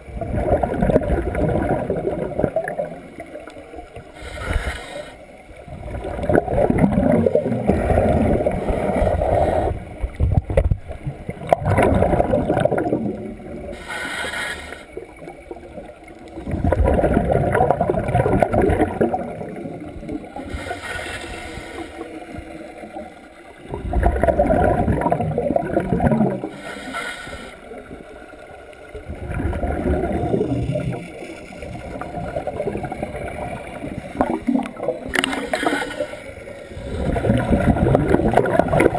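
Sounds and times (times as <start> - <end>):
bubbling exhale underwater: 0.0 - 3.3, 5.6 - 21.6, 23.6 - 26.6, 28.9 - 38.9
regulator hissing inhale: 4.1 - 5.4, 13.7 - 15.1, 20.4 - 22.4, 26.4 - 27.9, 35.2 - 37.3.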